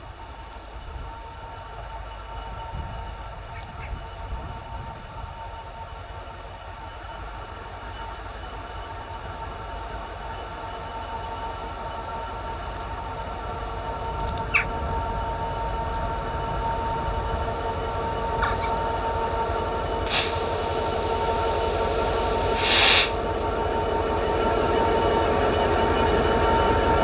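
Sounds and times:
freight train rumble: 0.0s - 27.0s
short hisses: 20.1s - 23.4s.

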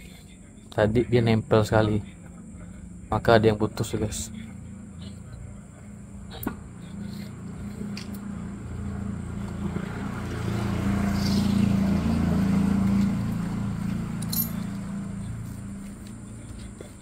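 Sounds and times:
vehicle engine passing by: 6.1s - 17.0s.

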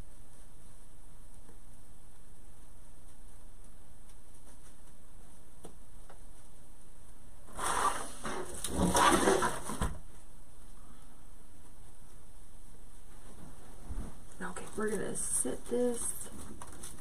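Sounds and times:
wreath rustling and scraping on table: 7.5s - 9.8s.

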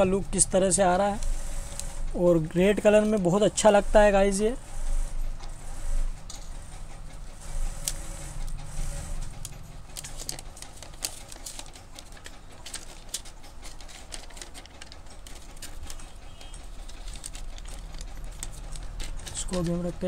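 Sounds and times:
plastic packaging crinkling: 9.3s - 20.0s.

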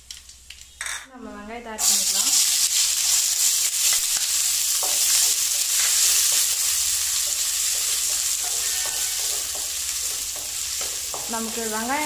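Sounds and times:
onions sizzling in oil: 1.8s - 12.0s
spatula scraping pan: 4.7s - 11.6s.

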